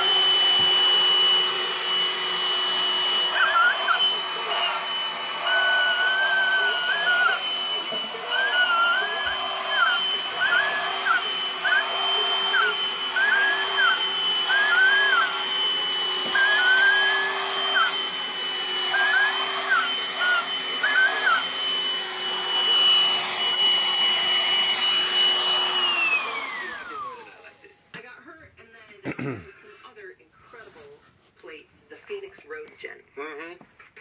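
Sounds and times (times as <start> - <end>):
vacuum cleaner motor whining: 0.0 - 28.1
short rising and falling squeaks: 8.3 - 15.4, 16.3 - 18.0, 18.8 - 21.8.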